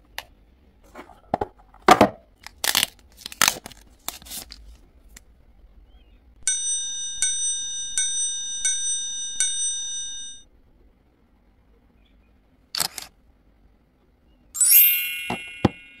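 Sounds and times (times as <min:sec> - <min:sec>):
bell-like chime: 0:06.5 - 0:10.4, 0:14.6 - 0:16.0.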